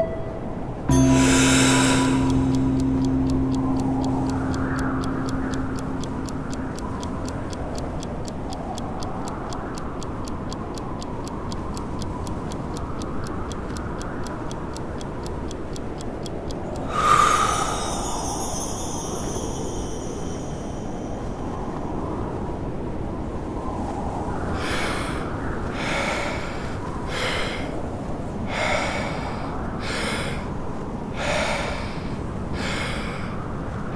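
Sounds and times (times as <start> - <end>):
bell-like tone: 0.0 - 8.0, 16.8 - 22.2
timer ticking: 0.9 - 21.8
wind rushing: 16.8 - 25.7.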